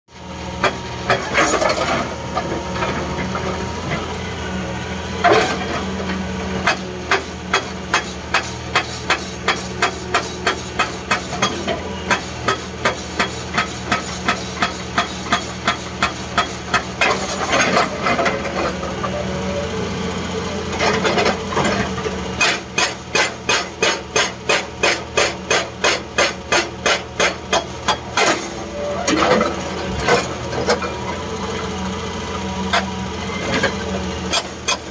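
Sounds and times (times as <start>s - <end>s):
diesel engine droning: 0.1s - 23.2s, 26.7s - 34.9s
hydraulic rock breaker hammering: 5.2s - 19.1s, 20.7s - 31.0s, 32.6s - 34.9s.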